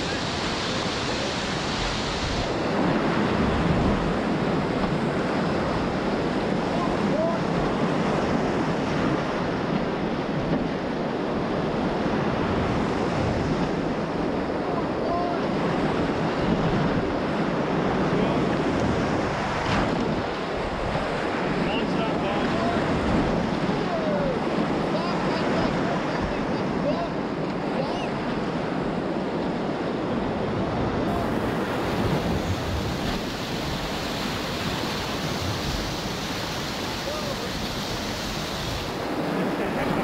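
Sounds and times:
whitewater rapids rushing: 0:00.0 - 0:09.9, 0:31.0 - 0:40.0.

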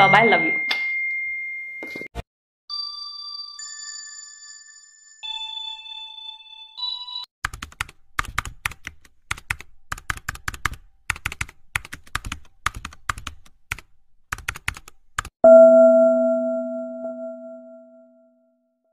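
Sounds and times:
short electronic chime: 0:15.4 - 0:18.2.

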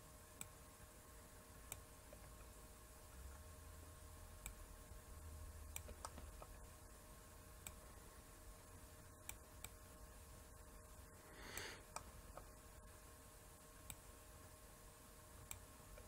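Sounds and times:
faint steady hum: 0:00.0 - 0:16.0
computer mouse clicks: 0:01.7 - 0:02.5, 0:05.7 - 0:06.6, 0:07.6 - 0:07.8, 0:09.2 - 0:09.8, 0:11.5 - 0:12.5, 0:13.8 - 0:14.1, 0:15.4 - 0:16.0.

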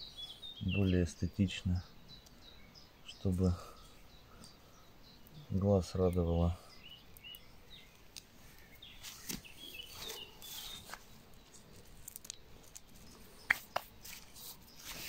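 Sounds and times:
bird chirps: 0:00.0 - 0:15.0
hands rustling padding and gravel: 0:07.9 - 0:15.0.

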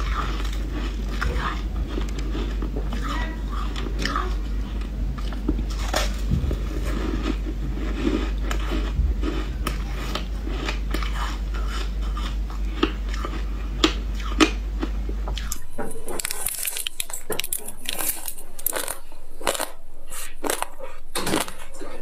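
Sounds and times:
steady low hum: 0:00.0 - 0:22.0
ice crunching between teeth: 0:05.7 - 0:21.8.

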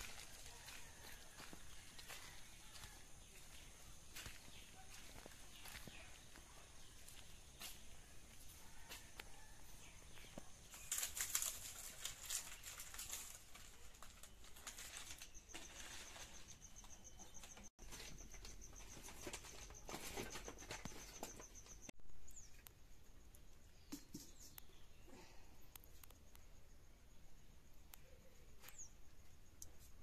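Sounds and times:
dry palm fronds rustling: 0:00.0 - 0:03.5, 0:10.6 - 0:16.6
light footsteps: 0:00.0 - 0:09.3.

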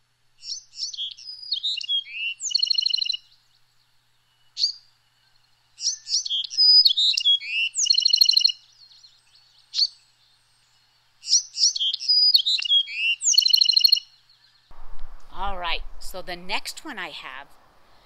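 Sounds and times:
wren singing: 0:00.4 - 0:14.7.

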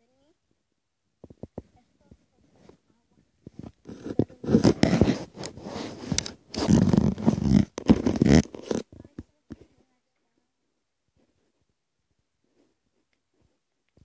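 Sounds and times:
phone handling scraping and rustling: 0:03.4 - 0:09.2.

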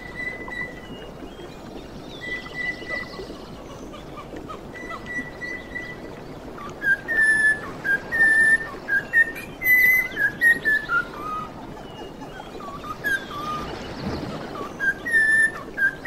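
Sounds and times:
cockatiel whistling: 0:14.8 - 0:16.0.

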